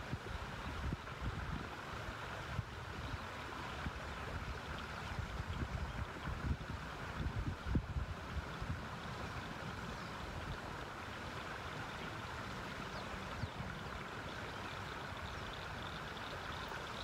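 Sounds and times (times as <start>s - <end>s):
wind on microphone: 0.0s - 1.8s, 2.4s - 10.7s
river water rushing: 0.0s - 17.0s.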